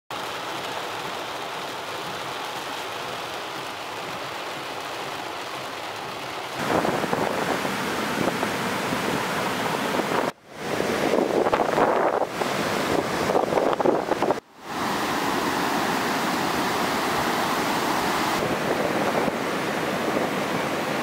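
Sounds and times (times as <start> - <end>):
heavy rain on car windshield: 0.2 - 8.8
breaking surf: 3.1 - 21.0
gusting wind on microphone: 6.6 - 21.0.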